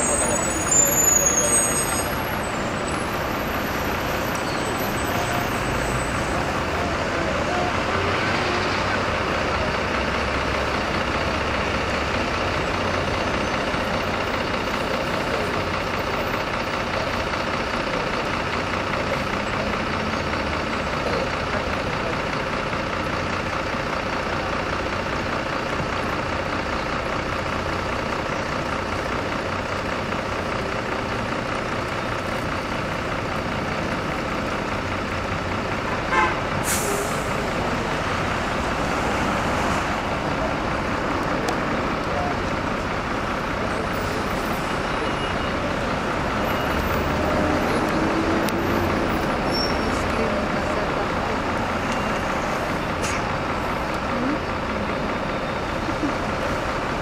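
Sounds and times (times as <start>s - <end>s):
bus engine: 0.0s - 57.0s
street traffic: 0.0s - 57.0s
air brakes hissing: 36.5s - 37.6s.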